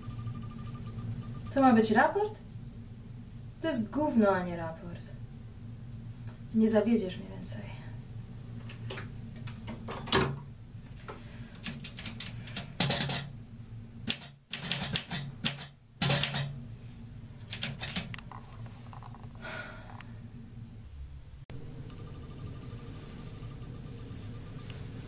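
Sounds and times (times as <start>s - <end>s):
manual typewriter keystrokes: 11.6s - 13.3s, 14.1s - 16.5s, 17.4s - 18.1s.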